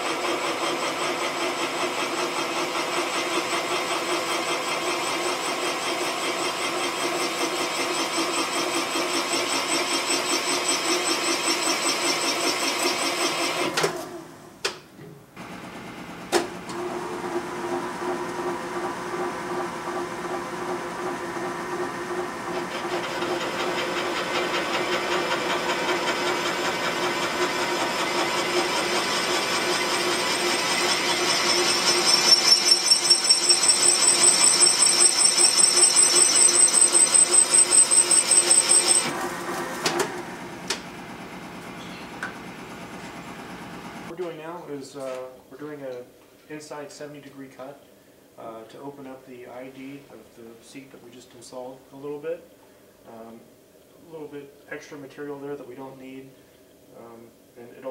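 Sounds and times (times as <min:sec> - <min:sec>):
valve seat cutter grinding: 0:02.1 - 0:13.7, 0:16.7 - 0:39.2.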